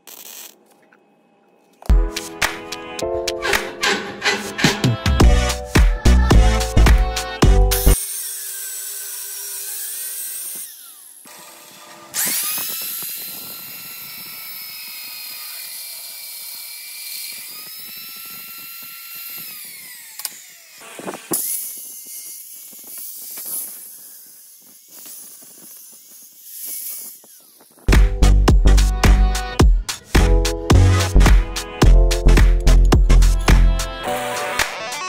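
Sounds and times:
angle grinder cutting steel: 2.2s - 5.8s, 6.5s - 27.9s, 30.9s - 35.0s.

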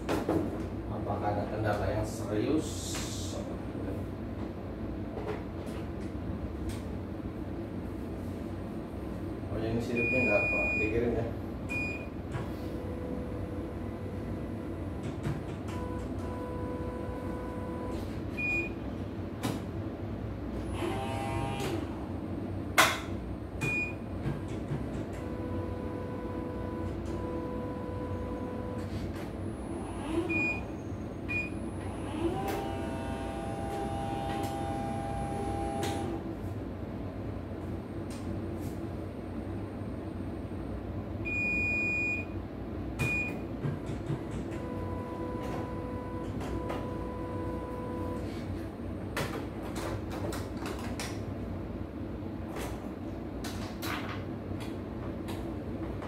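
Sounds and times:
steady low hum: 0.0s - 56.0s
short beeps: 10.0s - 10.9s
embroidery machine motor whine: 12.8s - 18.0s, 20.6s - 22.0s, 25.2s - 30.7s, 31.5s - 36.2s, 44.5s - 48.2s.

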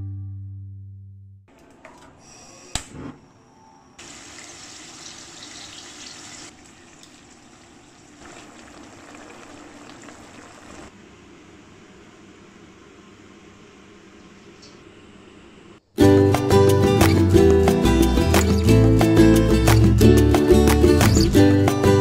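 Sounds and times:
pork sizzling in oil: 4.0s - 10.9s.

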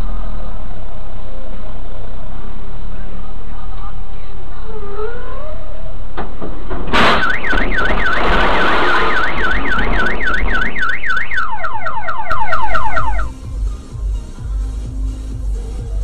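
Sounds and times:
electronic siren sweeping: 7.0s - 13.4s.

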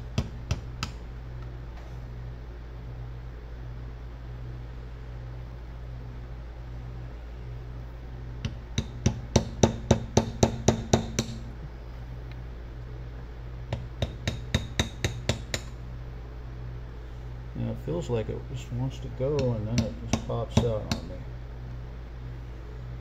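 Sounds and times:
hammer tapping metal punch: 0.0s - 1.0s, 8.4s - 11.5s, 13.7s - 15.8s, 19.3s - 21.2s
steady low hum: 0.0s - 23.0s.

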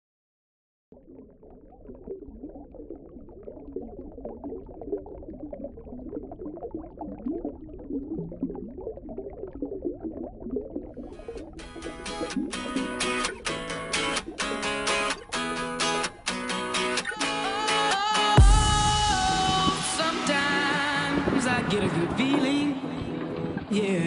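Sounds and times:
underwater bubbling and gurgling: 0.9s - 16.3s
strummed guitar music: 11.4s - 24.0s.

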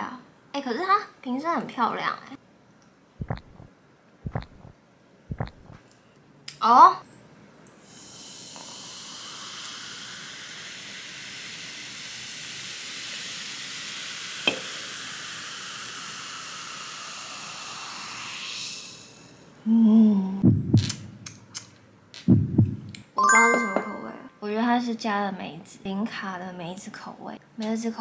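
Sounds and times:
soda fizzing in a mug: 7.9s - 19.3s.

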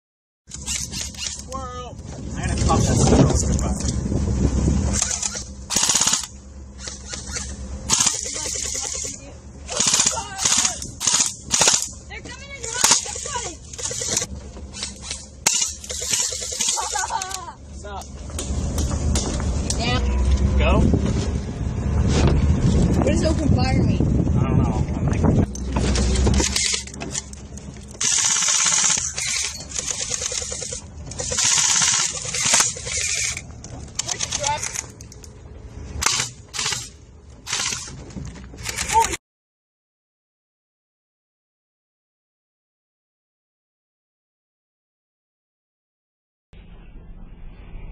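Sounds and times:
airsoft rifle bursts: 5.0s - 11.8s, 28.0s - 33.4s.

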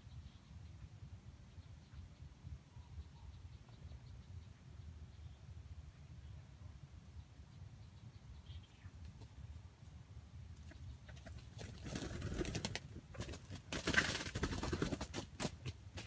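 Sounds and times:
roosters clucking: 10.6s - 16.0s.

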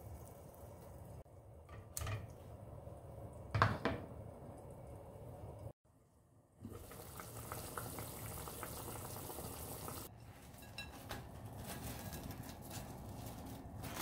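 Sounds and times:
broth bubbling in saucepan: 6.6s - 10.1s.

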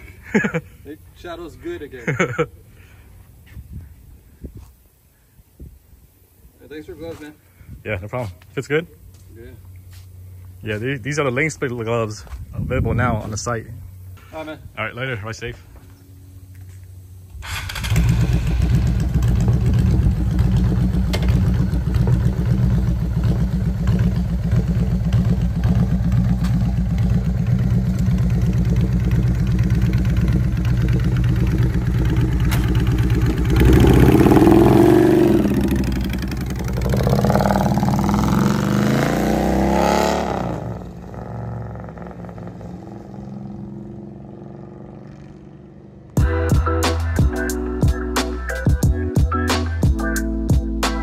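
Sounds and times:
motorcycle engine idling: 15.7s - 38.6s, 40.6s - 46.3s
motorcycle revving: 17.3s - 46.3s.

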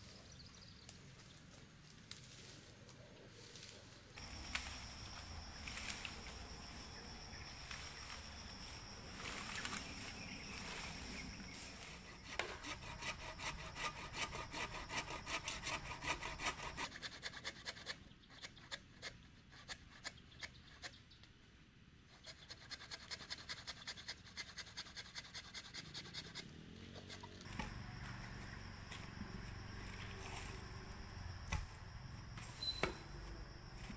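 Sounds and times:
hand saw cutting bamboo: 11.6s - 21.0s, 22.1s - 27.7s.

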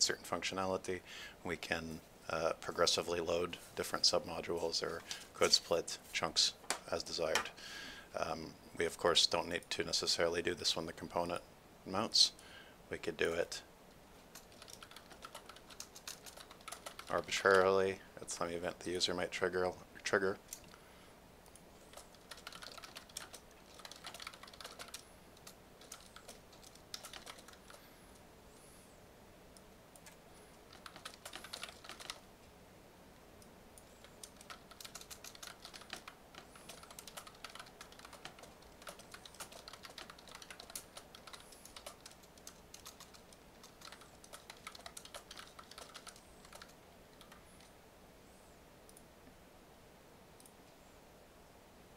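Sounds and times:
typing on computer keyboard: 14.3s - 17.4s, 21.9s - 27.8s, 30.0s - 32.2s, 33.8s - 47.7s.

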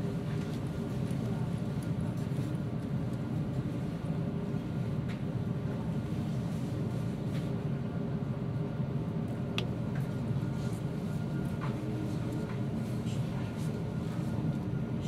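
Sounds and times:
low rumble and hum: 0.0s - 15.0s.

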